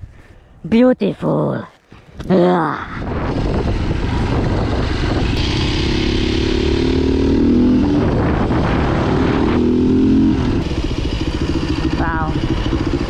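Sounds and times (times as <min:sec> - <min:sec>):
dirt bike engine revving: 0:03.0 - 0:13.0.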